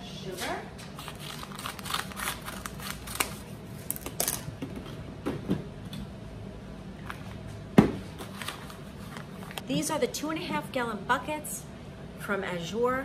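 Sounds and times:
scissors cutting paper bag: 1.0 - 4.4.

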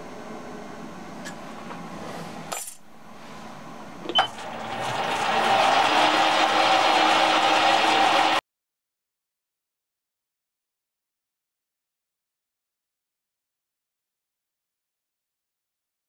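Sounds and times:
lathe running: 4.0 - 8.4.

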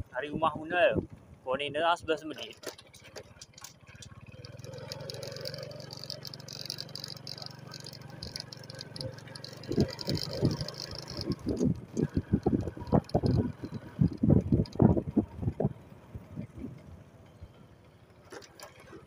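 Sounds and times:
motor running: 4.2 - 14.7.

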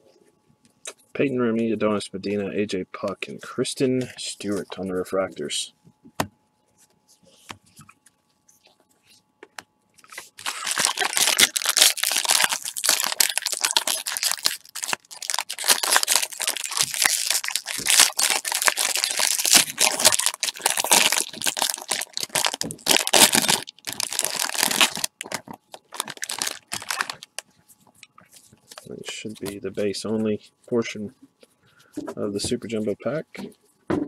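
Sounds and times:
foil wrapper crinkling: 10.0 - 27.5.

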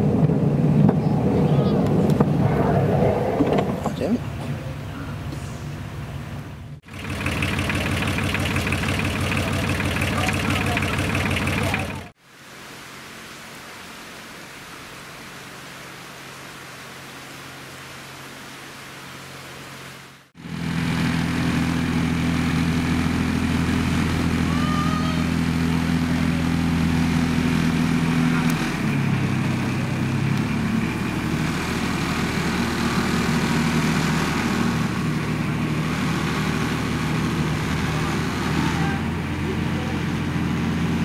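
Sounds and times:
miniature locomotive engine running: 6.9 - 12.1.

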